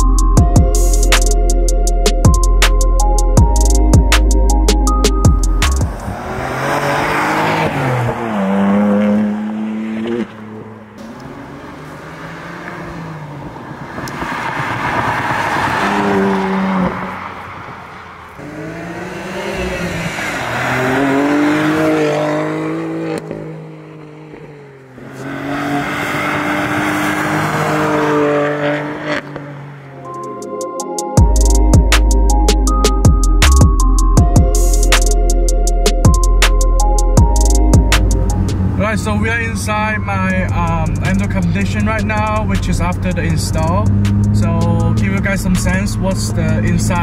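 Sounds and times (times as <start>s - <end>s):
car engine accelerating: 4.5s - 30.4s, 36.0s - 47.0s.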